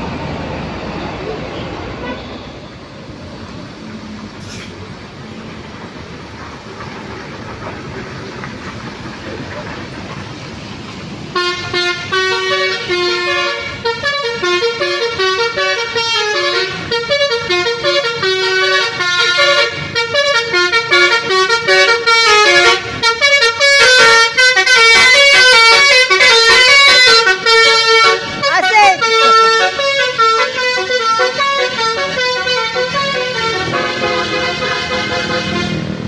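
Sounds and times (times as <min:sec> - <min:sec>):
musical bus air horn: 0:02.0 - 0:02.7, 0:11.3 - 0:36.0.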